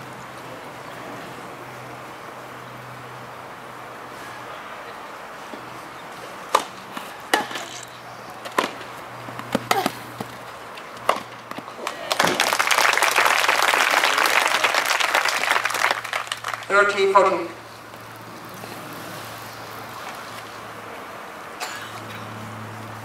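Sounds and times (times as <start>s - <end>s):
racket hitting tennis ball: 6.4s - 12.4s
crowd applause: 11.8s - 17.1s.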